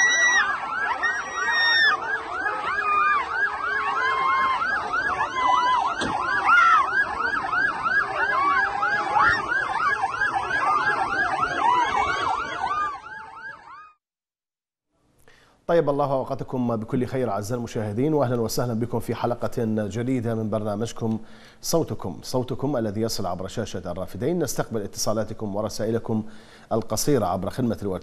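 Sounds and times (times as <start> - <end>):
crowd noise: 0.0 - 13.4
sirens yelping: 0.0 - 14.0.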